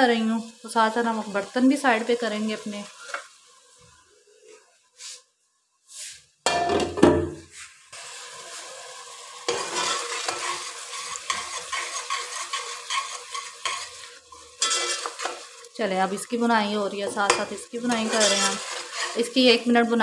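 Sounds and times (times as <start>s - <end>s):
food sizzling in a pot: 0.0s - 5.3s, 7.4s - 20.0s
dishes clattering: 6.5s - 7.4s, 14.6s - 15.4s
spoon stirring and scraping pot: 9.5s - 19.6s.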